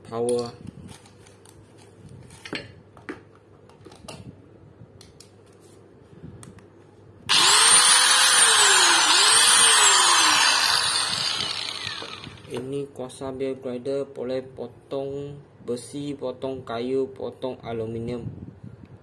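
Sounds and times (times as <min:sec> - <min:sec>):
angle grinder motor whine: 0:07.3 - 0:12.6.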